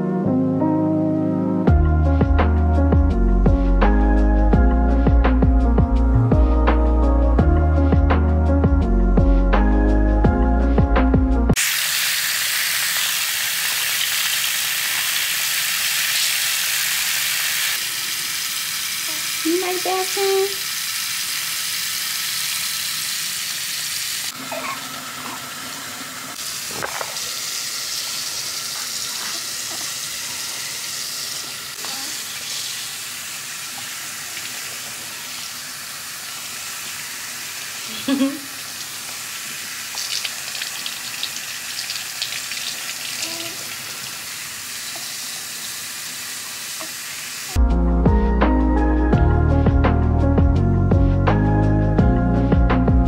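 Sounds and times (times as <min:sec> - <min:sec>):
music: 0:00.0 - 0:11.6, 0:47.6 - 0:53.0
tap running water splashing: 0:11.6 - 0:47.6.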